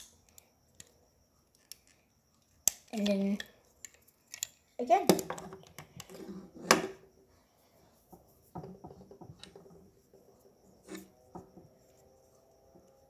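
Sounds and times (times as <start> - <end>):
plastic bricks clicking: 2.6 - 6.1.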